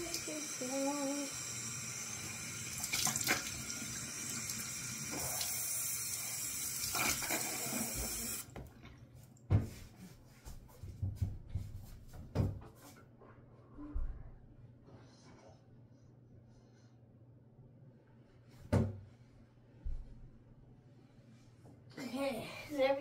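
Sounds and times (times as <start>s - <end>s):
faucet running: 0.0s - 8.5s.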